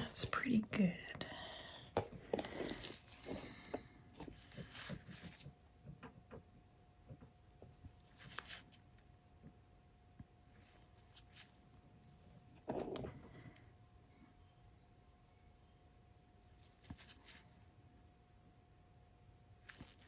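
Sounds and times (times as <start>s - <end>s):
steady low hum: 0.0s - 20.0s
soft handling noises: 1.5s - 6.0s, 7.6s - 8.8s, 10.2s - 13.7s, 16.6s - 17.6s, 19.6s - 20.0s.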